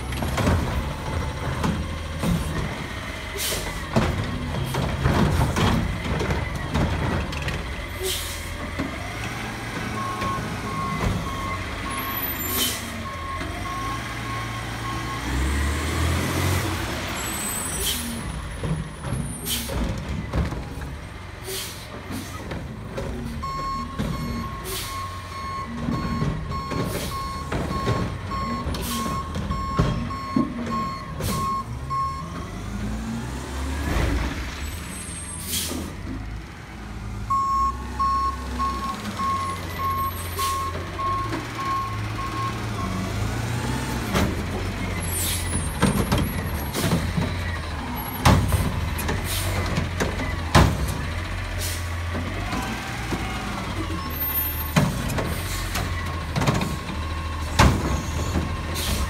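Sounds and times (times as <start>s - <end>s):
garbage truck diesel engine: 0.0s - 59.0s
back-up alarm beeping: 23.4s - 32.4s, 37.3s - 43.0s.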